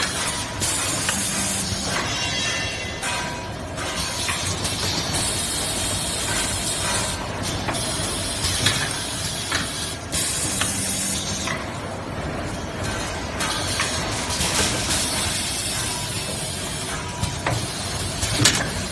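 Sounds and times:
packing machinery running: 0.0s - 18.9s
machine hiss: 3.9s - 11.4s.

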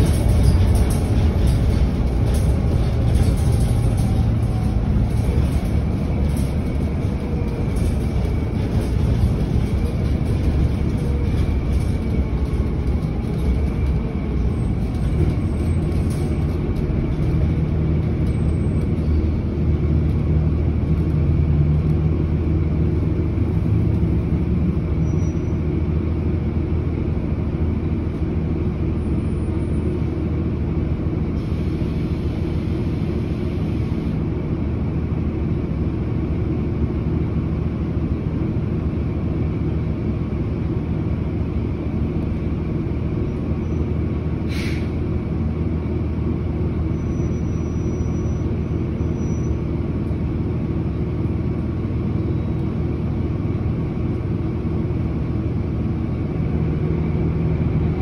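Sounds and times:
bus engine idling: 0.0s - 58.0s
sharp air hiss: 44.5s - 45.0s.

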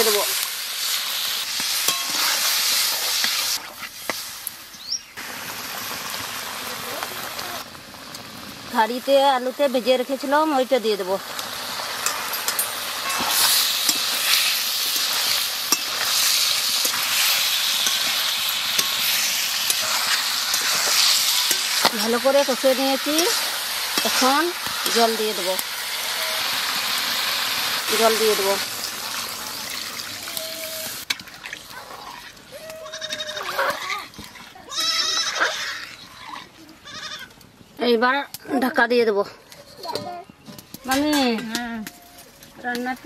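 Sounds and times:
curry sizzling in a pan: 0.0s - 36.4s
livestock bleating: 32.7s - 33.9s, 34.7s - 35.9s.

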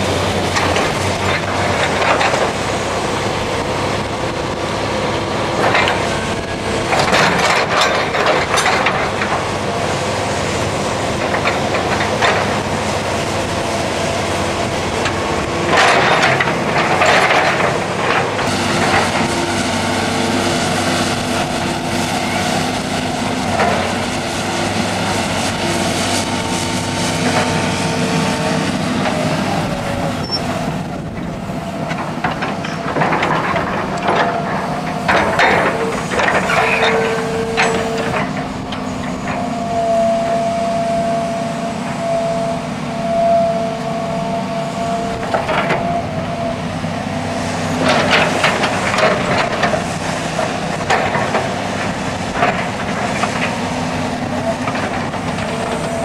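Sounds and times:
heavy machinery running: 0.0s - 56.0s
clanking and crunching: 5.5s - 9.6s, 14.5s - 19.6s, 31.1s - 40.5s, 44.2s - 46.8s, 47.7s - 56.0s.

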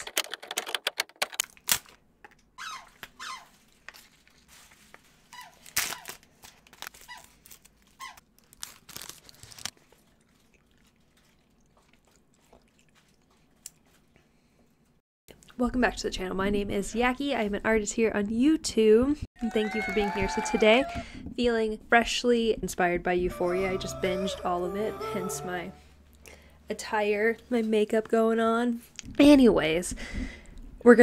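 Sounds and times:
foil wrapper tearing and crinkling: 1.2s - 2.0s, 3.6s - 9.8s.

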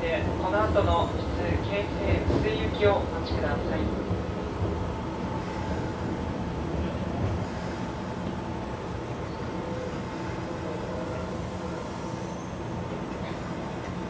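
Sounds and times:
electric train humming: 0.0s - 14.0s.

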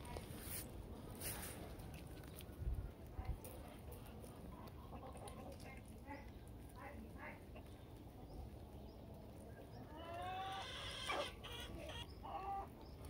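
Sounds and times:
chickens calling: 7.4s - 13.0s.

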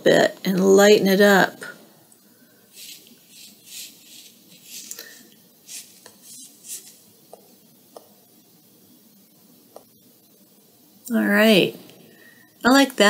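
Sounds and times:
stylus swishing on glass screen: 2.7s - 7.1s.

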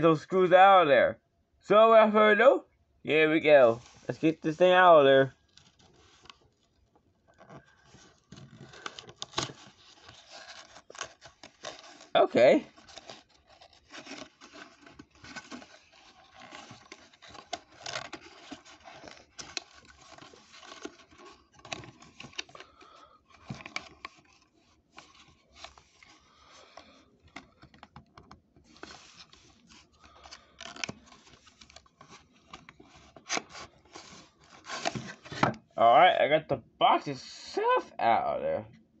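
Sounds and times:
cardboard scraping and rustling: 5.4s - 35.7s.

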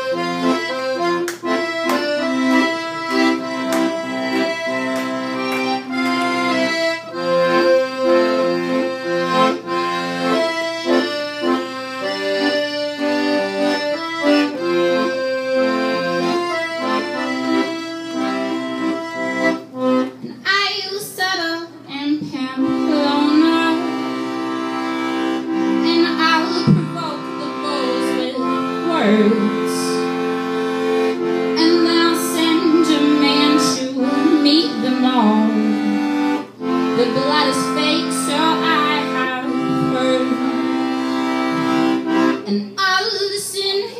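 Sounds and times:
accordion playing: 0.0s - 43.9s.

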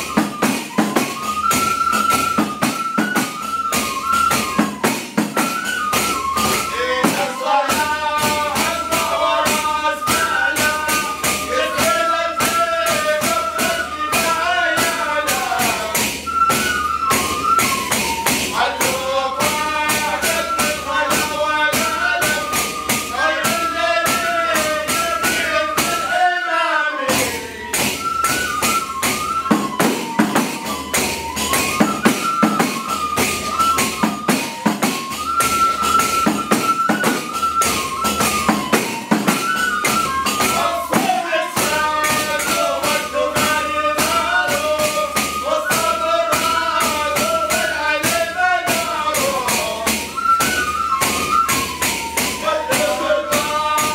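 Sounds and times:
frame drums with jingles: 0.0s - 26.4s, 27.0s - 53.9s
men singing a devotional chant: 6.7s - 16.2s, 18.4s - 27.5s, 40.4s - 50.2s, 52.2s - 53.9s.

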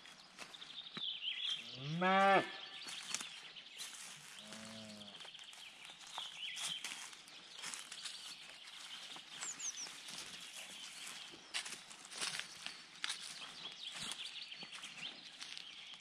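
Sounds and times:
birds chirping: 0.0s - 16.0s
footsteps on snow and grass: 0.0s - 16.0s
cow mooing: 1.8s - 2.5s.

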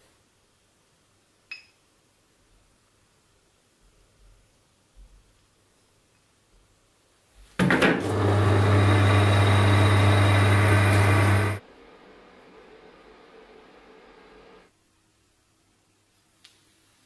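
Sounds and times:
drill press motor hum: 8.0s - 11.6s.

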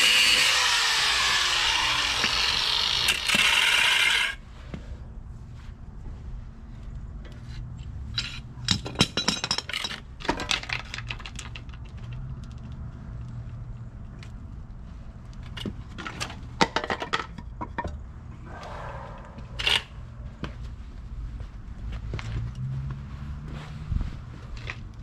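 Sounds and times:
metal clattering and knocking: 8.7s - 11.5s
steady low hum: 18.0s - 22.3s.

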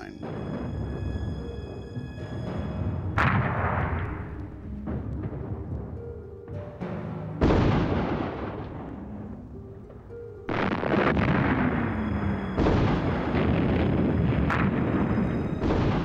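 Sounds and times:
background music: 0.0s - 16.0s
artillery booms: 0.2s - 1.4s, 2.5s - 6.0s, 7.4s - 9.1s, 10.5s - 16.0s.

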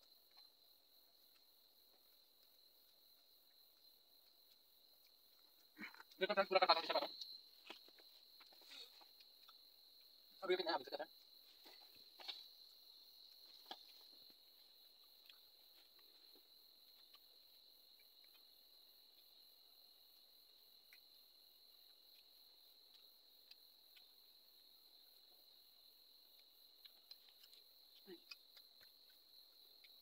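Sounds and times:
crickets trilling: 0.0s - 30.0s.

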